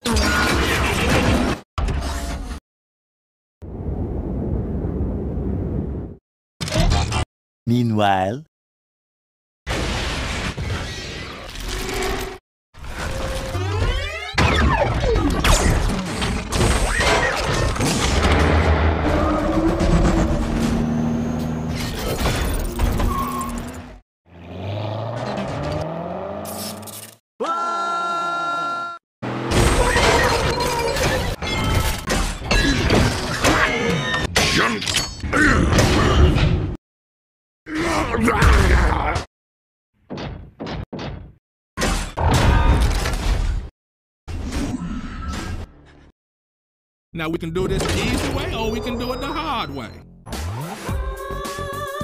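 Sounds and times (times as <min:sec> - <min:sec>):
mechanical whirring and clanks: 0:10.8 - 0:24.0
music: 0:50.0 - 0:52.0.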